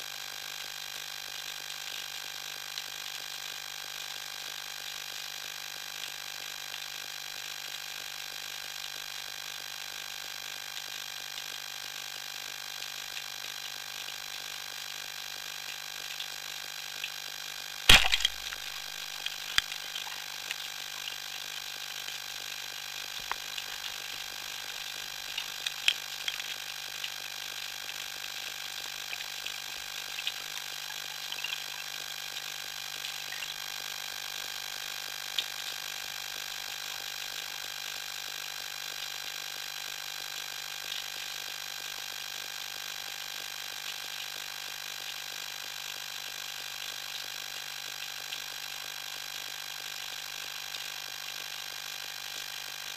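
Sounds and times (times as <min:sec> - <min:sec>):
sharp clicks and crackles: 0:17.9 - 0:31.8.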